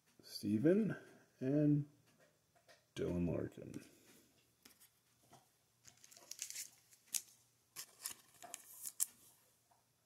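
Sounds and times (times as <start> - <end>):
card sliding into plastic sleeve: 5.9 - 9.2.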